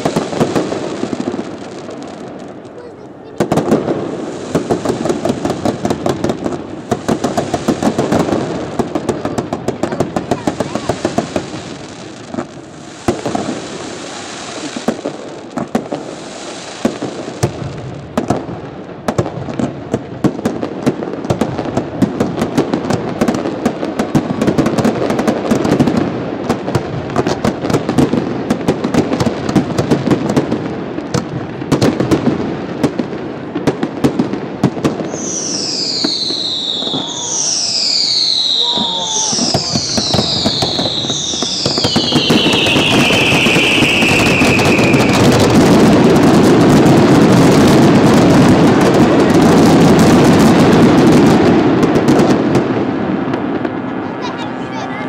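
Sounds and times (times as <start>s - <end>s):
fireworks bangs and crackling: 0.0s - 55.0s
hissing rush: 35.1s - 45.3s.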